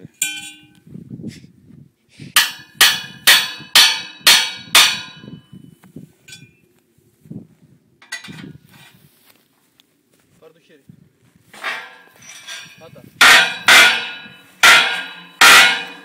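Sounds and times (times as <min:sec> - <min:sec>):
hammer ringing on steel: 0:00.2 - 0:00.8, 0:02.4 - 0:05.4, 0:13.2 - 0:16.0.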